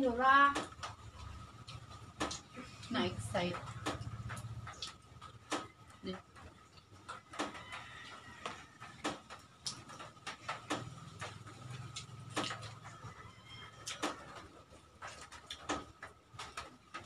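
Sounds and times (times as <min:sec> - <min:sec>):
chewing and mouth smacks: 0:06.4 - 0:10.0, 0:10.6 - 0:13.0, 0:13.7 - 0:16.6.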